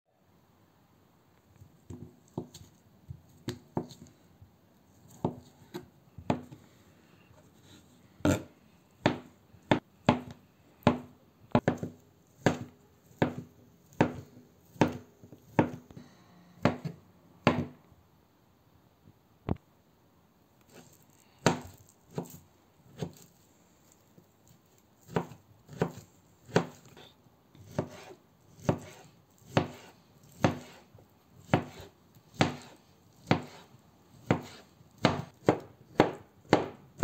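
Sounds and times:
knife chopping potatoes: 1.8 - 4.2, 4.9 - 6.6, 7.6 - 15.9, 16.6 - 17.8, 20.7 - 23.3, 24.4 - 37.0.

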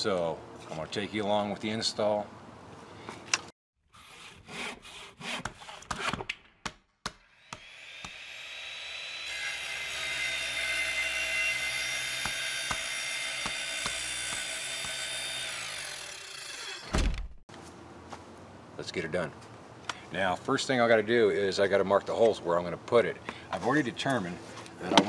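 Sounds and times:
power tool running: 7.3 - 16.9.

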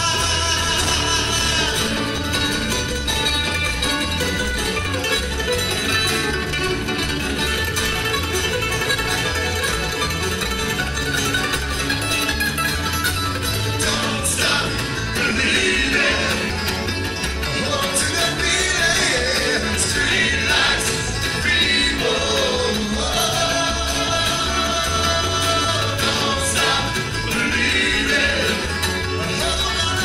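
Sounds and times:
bluegrass band playing: 0.0 - 30.0.

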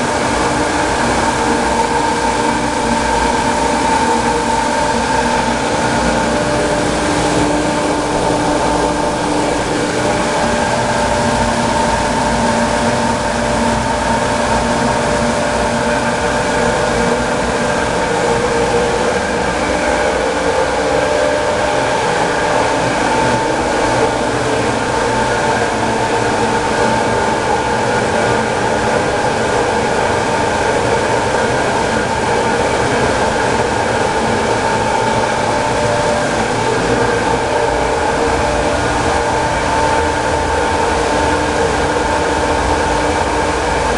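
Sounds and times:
falling water rushing: 0.0 - 15.1, 29.7 - 43.9
water turbine whine: 0.0 - 43.9.

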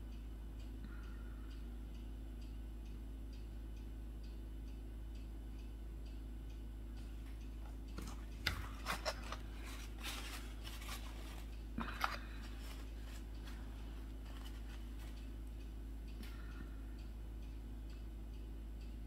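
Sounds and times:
soft rustling: 8.0 - 15.4.

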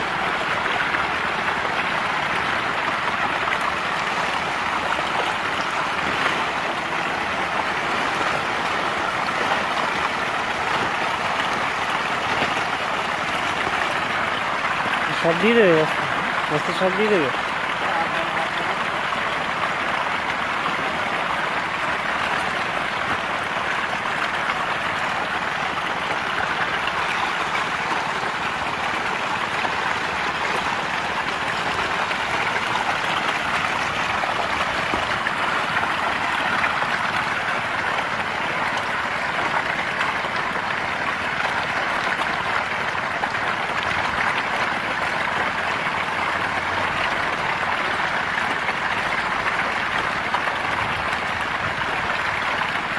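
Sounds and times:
fish splashing at water surface: 0.0 - 16.6.

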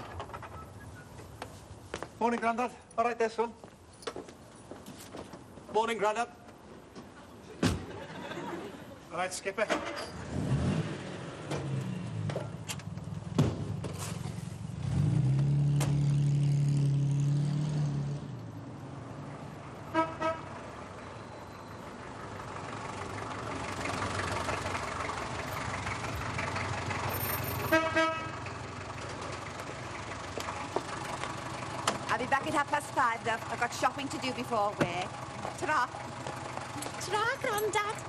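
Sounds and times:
car horn toots: 19.9 - 20.5, 27.6 - 28.4
car engine running: 28.5 - 38.0.

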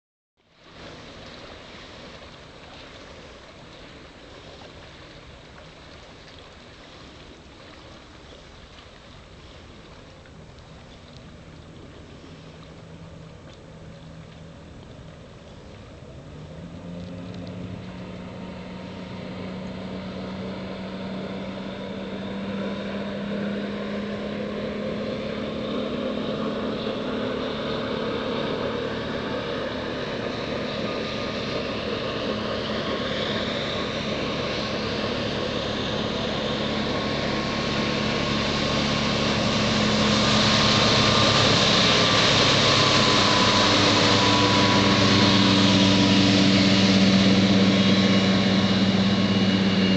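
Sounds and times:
motorboat engine running: 0.4 - 49.9
hull and spray hissing: 33.2 - 49.9.

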